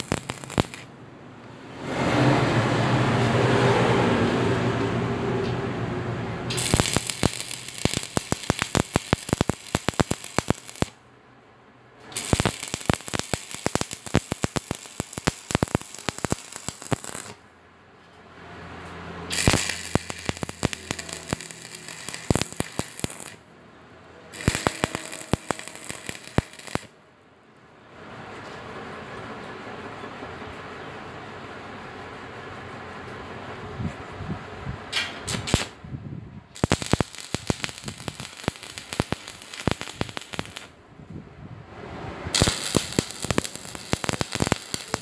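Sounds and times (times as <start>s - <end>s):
welding arc crackling and popping: 0.0s - 0.9s, 6.5s - 11.0s, 12.1s - 17.4s, 19.3s - 23.4s, 24.3s - 26.9s, 35.3s - 35.8s, 36.6s - 40.8s, 42.3s - 45.0s.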